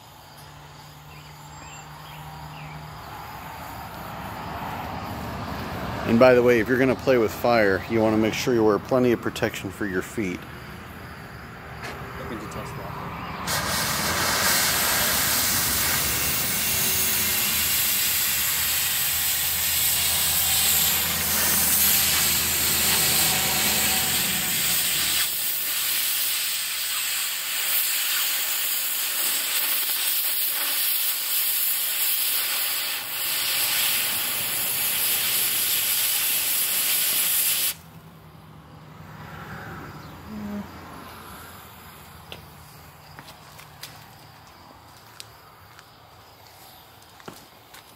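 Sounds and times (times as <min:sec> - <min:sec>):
cutting torch hissing: 0:13.4 - 0:38.0.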